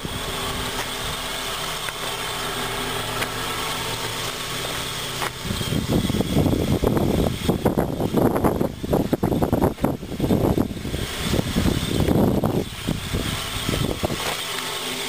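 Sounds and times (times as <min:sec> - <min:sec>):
low buffeting on microphone: 0:00.0 - 0:14.3
car engine idling: 0:00.0 - 0:15.0.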